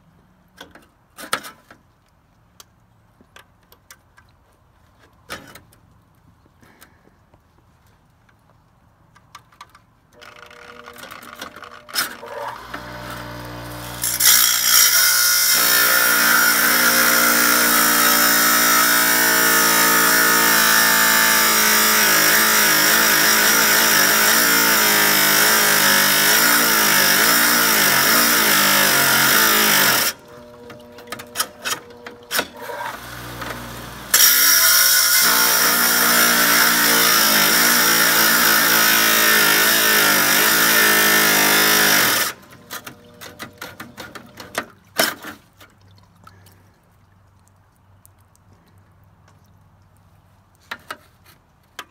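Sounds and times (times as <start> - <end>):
tile saw grinding tile: 10.2 - 45.3.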